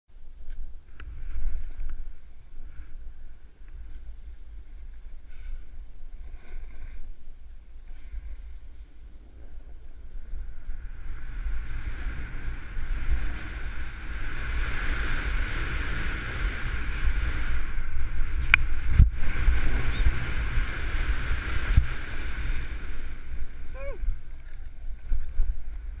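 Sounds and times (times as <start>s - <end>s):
wind buffeting microphone: 0.2s - 26.0s
snowboard scraping over snow: 3.8s - 24.2s.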